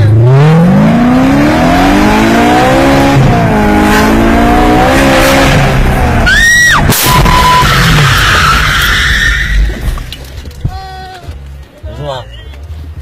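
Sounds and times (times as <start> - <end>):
car engine revving: 0.0 - 8.7.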